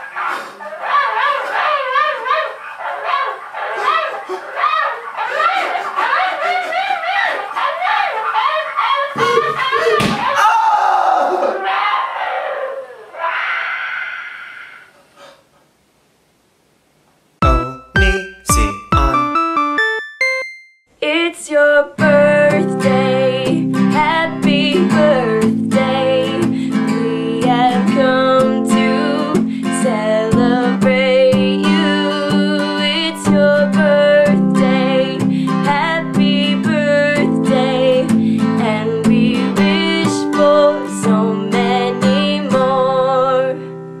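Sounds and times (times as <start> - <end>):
acoustic guitar strumming: 17.4 - 20.4, 22.0 - 43.3
woman singing: 21.0 - 43.8.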